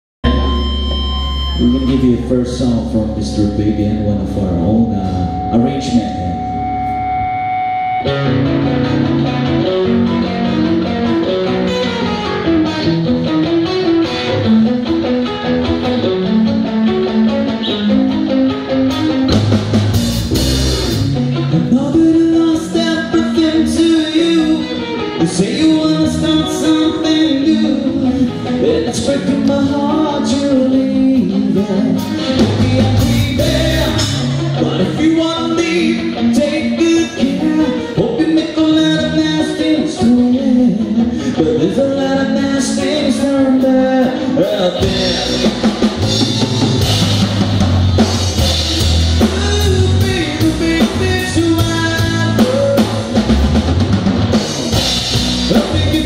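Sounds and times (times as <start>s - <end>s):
electric bass: 0.2s - 56.0s
electric guitar chord ringing: 0.2s - 56.0s
low held guitar notes: 0.2s - 56.0s
picked electric guitar melody: 0.2s - 56.0s
person singing: 1.4s - 8.8s, 21.3s - 46.8s, 49.2s - 53.4s, 55.4s - 56.0s
drum kit with cymbals: 19.3s - 21.2s, 44.8s - 56.0s.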